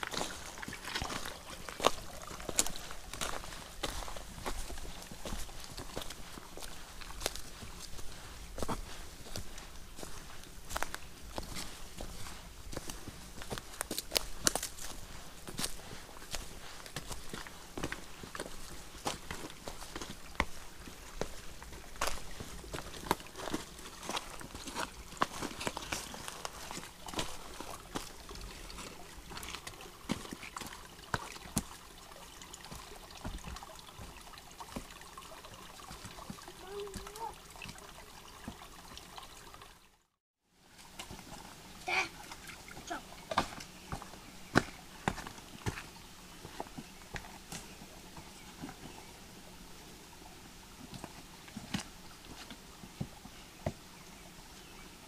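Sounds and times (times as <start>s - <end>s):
footsteps on rocks and leaves: 0.0s - 32.0s, 32.6s - 35.0s, 40.8s - 49.0s
water trickling over rocks: 0.0s - 55.0s.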